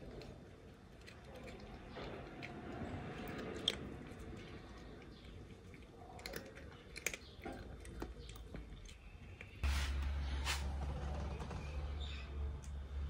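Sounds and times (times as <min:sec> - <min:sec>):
cat crunching dry noodles: 0:00.0 - 0:09.6.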